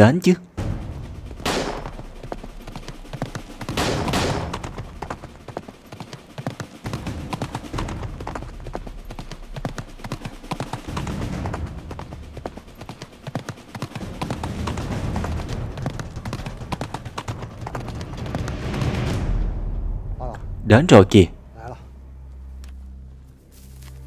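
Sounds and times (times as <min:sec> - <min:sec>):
horse hooves galloping on dirt: 0:01.2 - 0:19.1.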